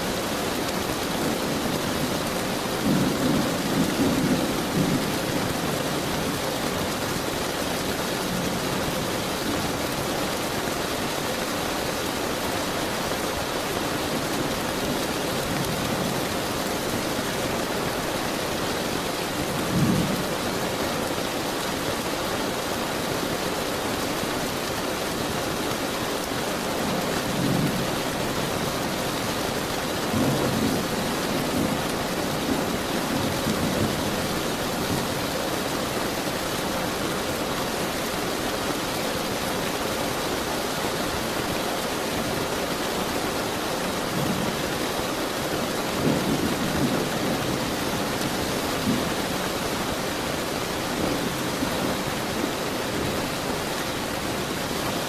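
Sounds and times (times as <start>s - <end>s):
steady rain: 0.0s - 55.0s.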